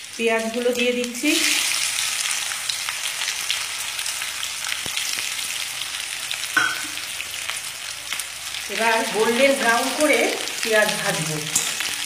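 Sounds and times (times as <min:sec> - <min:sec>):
onions sizzling in hot oil: 0:00.0 - 0:12.0
small oil crackles: 0:01.0 - 0:05.9.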